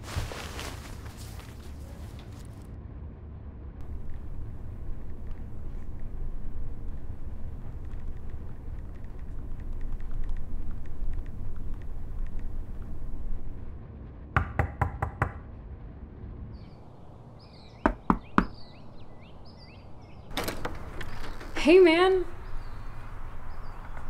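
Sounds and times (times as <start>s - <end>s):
birds chirping: 3.8s - 13.7s, 16.6s - 24.0s
knocking on a door: 14.4s - 15.4s, 17.9s - 18.6s.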